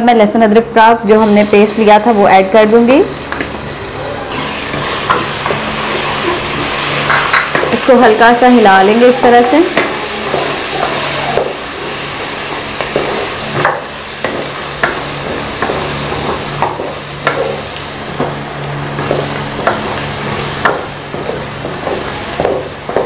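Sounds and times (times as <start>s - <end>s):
onions sizzling in oil: 1.2s - 23.0s.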